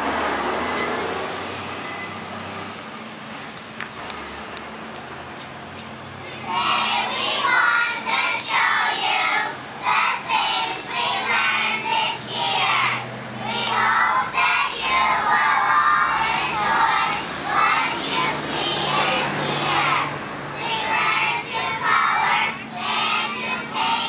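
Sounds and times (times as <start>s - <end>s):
children singing in unison: 6.3s - 24.0s.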